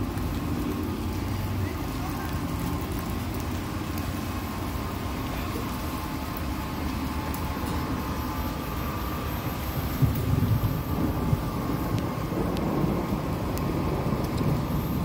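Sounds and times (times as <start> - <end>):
wind buffeting microphone: 9.6 - 15.0.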